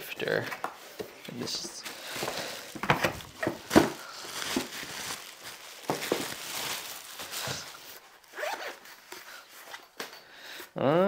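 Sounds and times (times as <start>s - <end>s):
plastic packaging crinkling: 1.5s - 9.6s.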